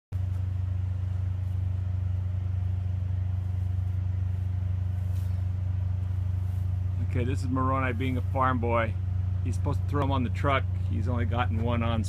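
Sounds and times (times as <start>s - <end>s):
engine idling: 0.1s - 12.0s.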